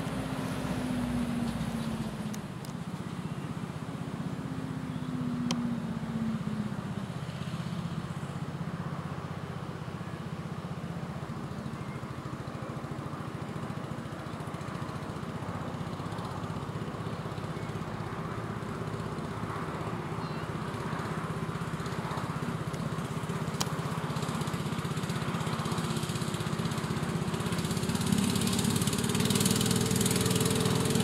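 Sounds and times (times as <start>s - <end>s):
miniature locomotive engine running: 12.1s - 31.0s.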